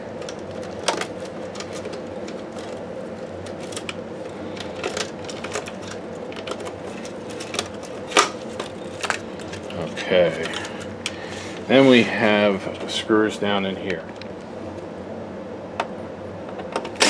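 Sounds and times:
faint steady hum: 0.0s - 17.0s
plastic parts clicking and rattling: 0.2s - 11.2s.

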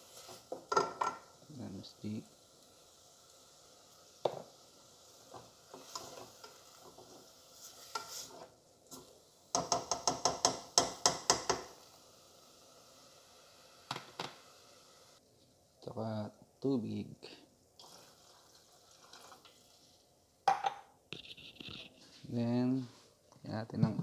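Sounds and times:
soft scraping in pot: 5.4s - 9.0s, 21.1s - 23.2s
spatula knocking against pot: 9.5s - 11.7s.

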